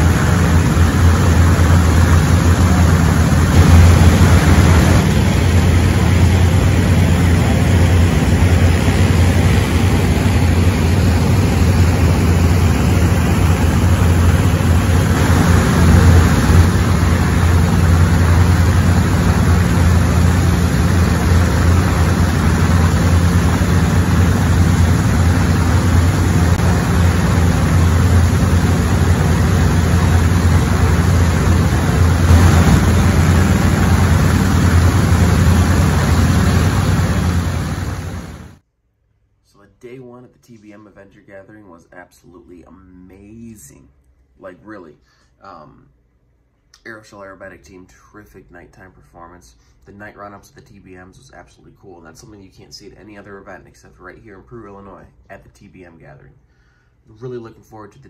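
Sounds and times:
radial aircraft engines droning: 0.0s - 38.6s.

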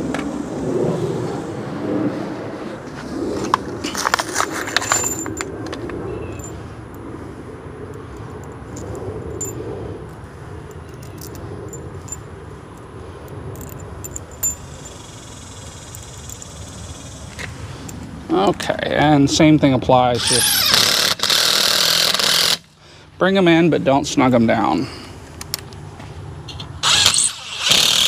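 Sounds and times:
metal fasteners clinking: 4.7s - 6.6s, 8.0s - 15.0s.

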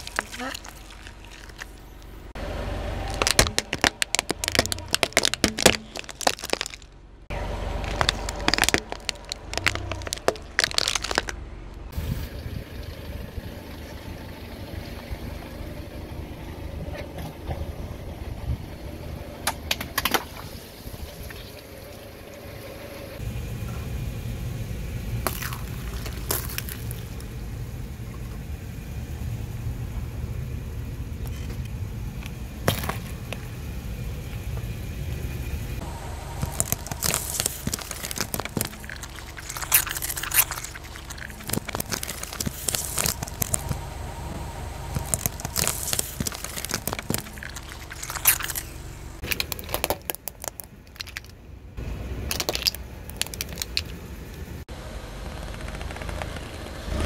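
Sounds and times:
tyre crushing small objects: 0.0s - 2.3s, 3.0s - 7.0s, 7.8s - 11.4s, 25.2s - 27.3s, 32.2s - 33.4s, 36.3s - 44.0s, 44.8s - 51.4s, 52.2s - 54.0s
low car rumble: 0.0s - 57.0s.

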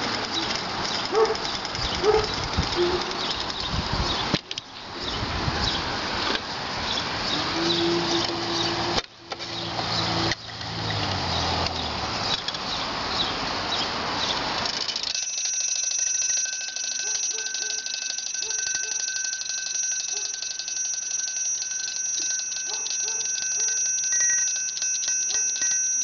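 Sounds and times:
gear train clattering: 0.0s - 4.3s, 14.4s - 26.0s
high ring: 15.1s - 26.0s.

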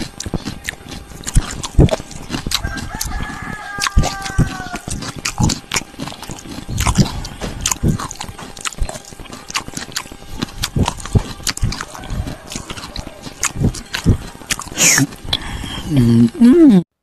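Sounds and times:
man chewing wetly: 0.0s - 16.0s.

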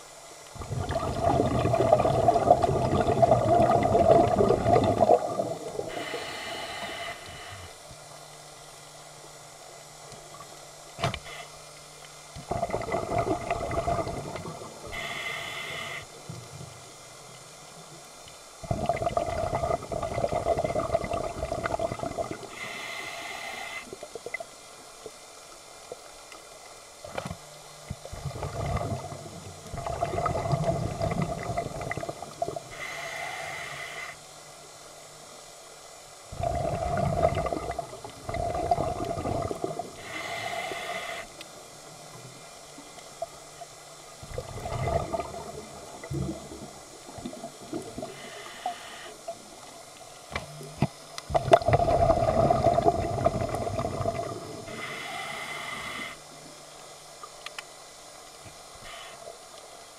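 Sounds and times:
exhaled bubbles underwater: 0.5s - 6.3s, 12.4s - 15.2s, 18.6s - 22.8s, 27.9s - 32.9s, 36.3s - 40.3s, 43.2s - 48.5s, 50.5s - 55.0s
regulator hissing inhale: 5.6s - 7.9s, 11.2s - 11.7s, 14.8s - 16.3s, 22.4s - 24.1s, 32.6s - 34.3s, 39.5s - 41.5s, 48.0s - 49.4s, 54.3s - 56.5s, 58.7s - 59.9s.

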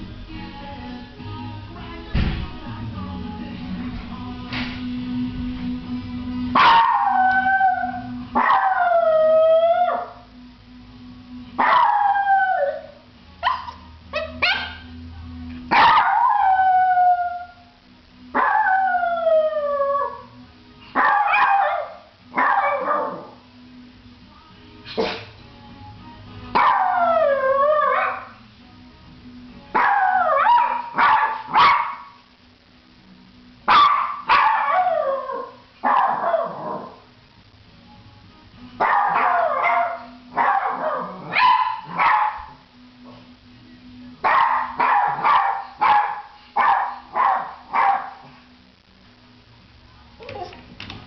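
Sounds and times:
dog barking and howling: 6.6s - 10.2s, 11.6s - 15.0s, 15.7s - 17.6s, 18.3s - 20.3s, 20.9s - 23.4s, 26.6s - 28.4s, 29.7s - 32.2s, 33.7s - 37.1s, 38.8s - 42.6s, 44.2s - 48.4s.

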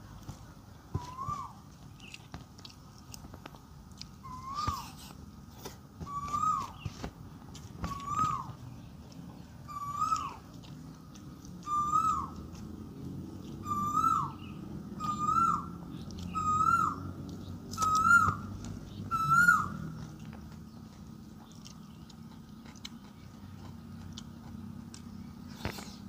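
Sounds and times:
bird calling: 0.9s - 2.3s, 4.2s - 5.2s, 6.0s - 22.4s.

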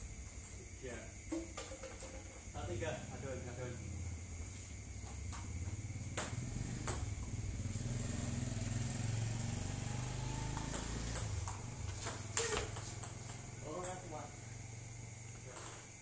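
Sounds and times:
table tennis ball hits: 6.2s - 7.3s, 10.3s - 14.1s, 15.4s - 16.0s.

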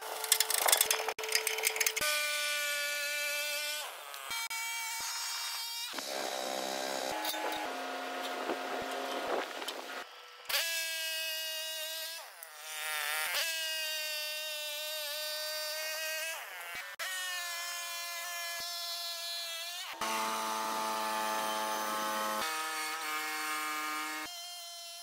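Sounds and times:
band sawmill whining: 5.1s - 10.1s.

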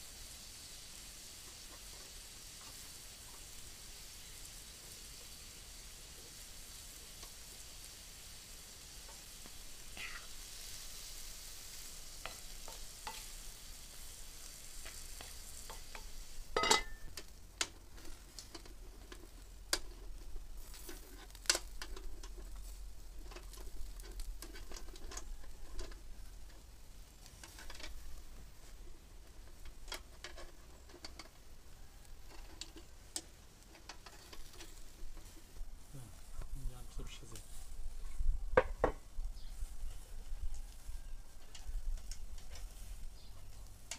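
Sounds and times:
meat sizzling in a pan: 0.0s - 36.4s, 37.3s - 43.9s
metal skewers clinking: 12.2s - 17.2s.

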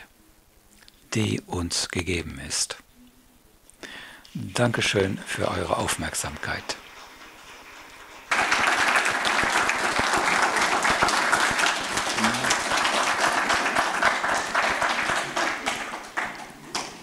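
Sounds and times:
audience applauding: 6.8s - 17.0s.

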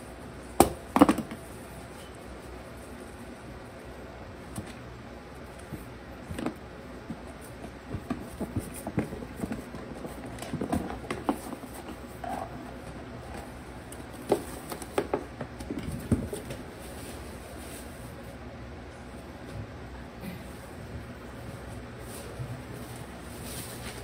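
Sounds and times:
puppies scrambling on hollow plastic: 5.7s - 16.6s.

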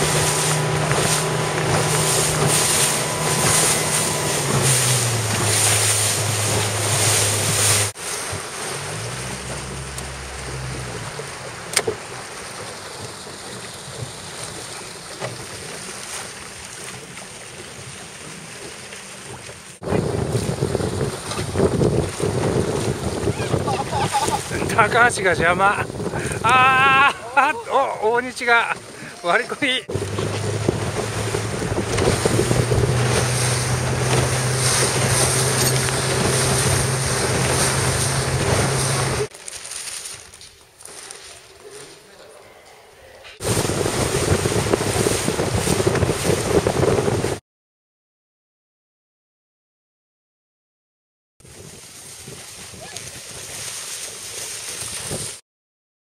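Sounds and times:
low hum: 0.0s - 13.0s
wind buffeting microphone: 0.0s - 14.8s, 19.8s - 39.3s, 43.4s - 47.4s, 51.4s - 55.4s
low motor hum: 0.0s - 16.0s, 28.6s - 39.3s
water splashing around a boat: 0.0s - 47.4s, 51.4s - 55.4s.

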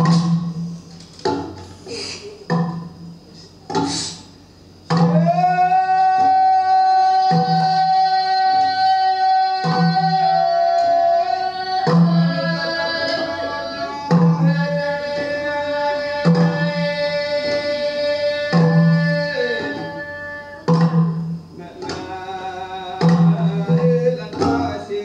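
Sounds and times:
person singing long notes: 4.9s - 25.0s.

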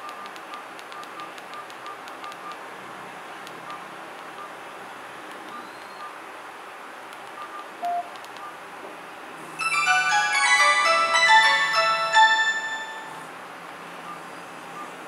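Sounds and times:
phone ringtone melody: 9.6s - 13.3s.

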